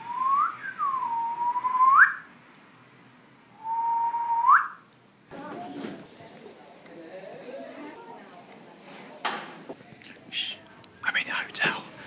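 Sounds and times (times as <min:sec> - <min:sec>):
person whistling: 0:00.0 - 0:02.2, 0:03.6 - 0:04.8.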